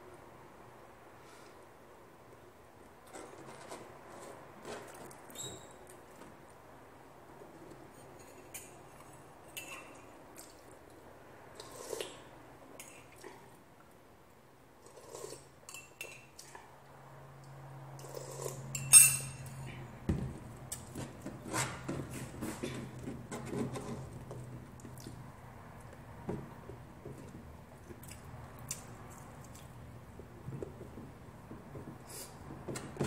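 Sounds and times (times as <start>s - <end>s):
metal spoon clinking ceramic mug: 15.7s - 16.3s, 18.8s - 19.5s.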